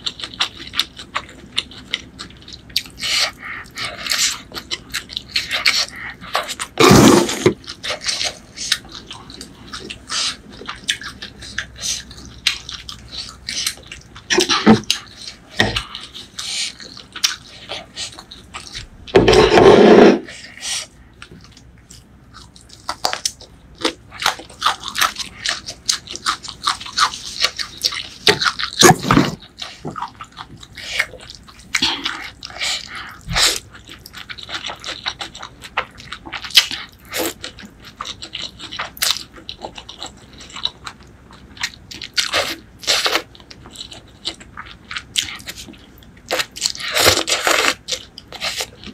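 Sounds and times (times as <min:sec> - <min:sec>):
chewing and wet mouth sounds: 0:00.0 - 0:19.5, 0:20.2 - 0:48.9
slurping: 0:05.5 - 0:08.8.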